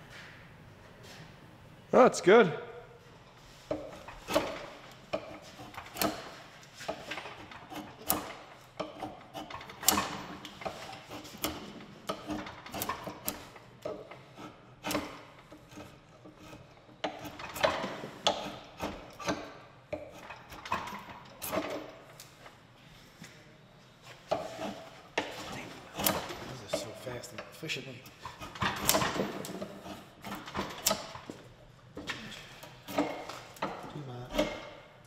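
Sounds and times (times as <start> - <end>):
file scraping wood: 3.5 - 21.9, 24.1 - 31.3, 32.1 - 34.8.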